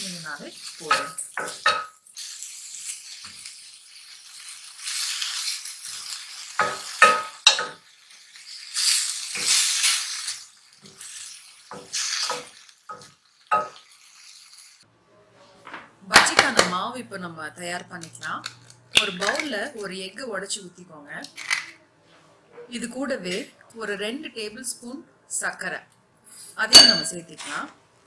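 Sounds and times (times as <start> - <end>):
apple sizzling in a pan: 0.0 - 14.9.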